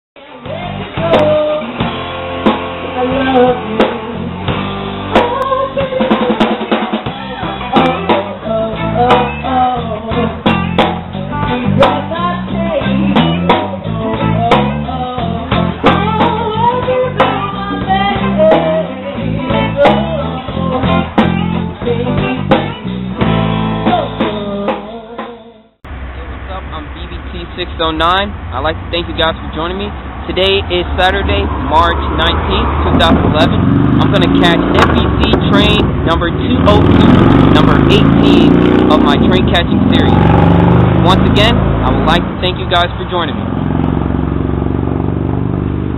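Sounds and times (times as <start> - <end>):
electric guitar: 0.2 - 25.4
drum kit steady beat: 0.5 - 25.4, 27.8 - 43.3.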